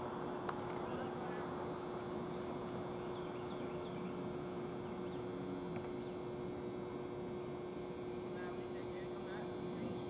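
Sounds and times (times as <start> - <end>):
faint outdoor background noise: 0.0 - 10.0
steady electrical hum: 0.0 - 10.0.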